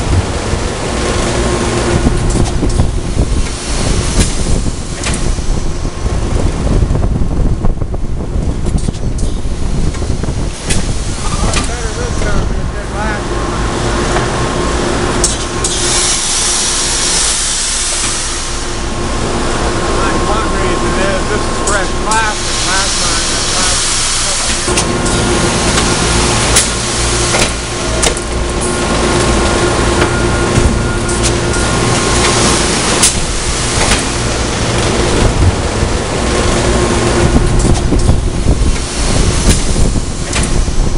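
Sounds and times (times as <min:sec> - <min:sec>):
industrial machine hum: 0:00.0 - 0:40.9
loud hiss: 0:15.4 - 0:29.0.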